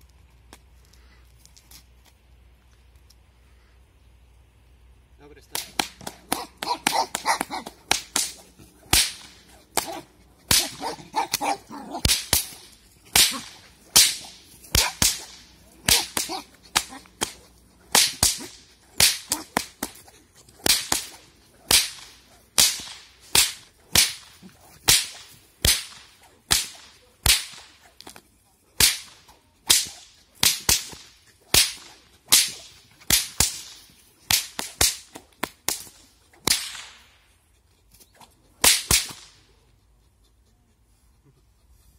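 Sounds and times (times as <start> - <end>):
whip cracking: 5.4 - 37.3, 38.0 - 39.6.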